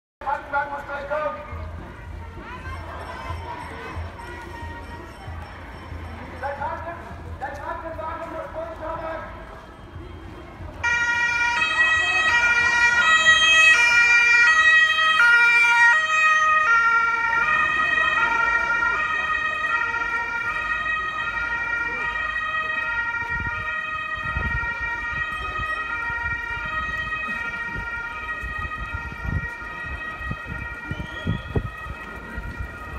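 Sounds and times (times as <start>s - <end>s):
ambulance two-tone siren: 9.5s - 32.9s.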